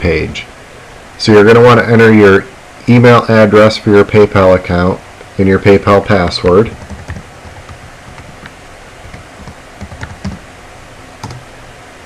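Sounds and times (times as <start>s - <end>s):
low steady hum: 0.0s - 12.0s
typing on keyboard: 6.7s - 10.4s, 11.2s - 11.4s.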